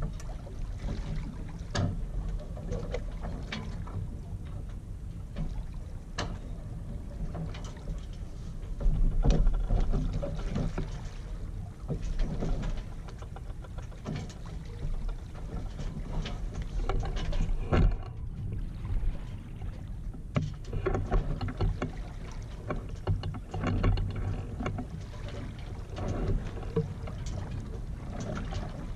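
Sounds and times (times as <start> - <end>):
water lapping against boat hull: 0.0 - 28.9
wind rumble on microphone: 0.0 - 28.9.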